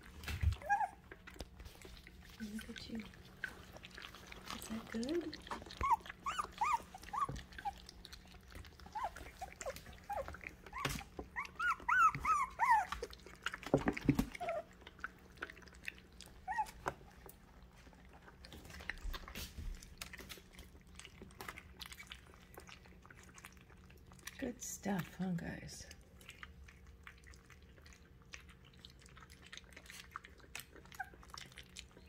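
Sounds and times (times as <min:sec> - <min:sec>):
puppies eating kibble from metal bowl: 0:00.0 - 0:32.0
puppies whimpering: 0:00.1 - 0:01.4, 0:03.6 - 0:13.6, 0:14.2 - 0:14.8, 0:16.0 - 0:17.2.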